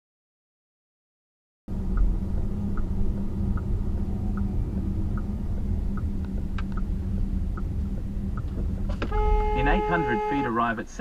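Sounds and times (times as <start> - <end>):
faint hum: 1.7 - 10.9
car road and engine rumble: 1.7 - 11.0
soft ticking: 1.9 - 9.1.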